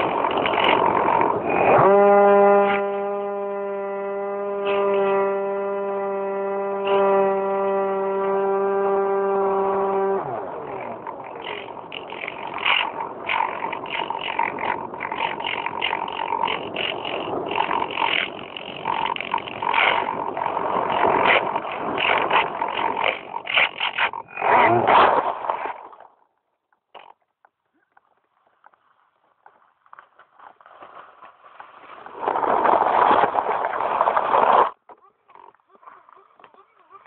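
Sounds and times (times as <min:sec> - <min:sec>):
rushing crackling noise: 0:00.0 - 0:01.6, 0:10.7 - 0:26.1, 0:28.4 - 0:34.8
model plane electric motor and propeller: 0:00.0 - 0:26.0
motor whine winding down: 0:01.4 - 0:13.1.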